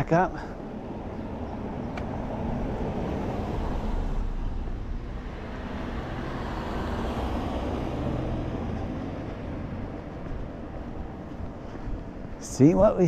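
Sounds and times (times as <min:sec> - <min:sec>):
steady low rumble: 0:00.5 - 0:13.0
car driving past: 0:01.0 - 0:10.4.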